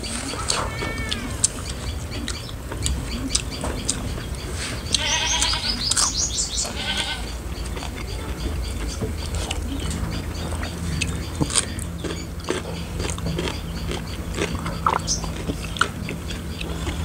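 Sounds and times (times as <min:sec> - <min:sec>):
animal bleating: 0:00.2 - 0:01.6, 0:04.8 - 0:07.5.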